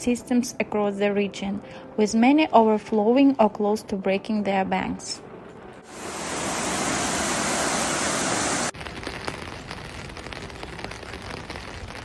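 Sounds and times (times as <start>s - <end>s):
floodwater rushing: 5.9s - 8.8s.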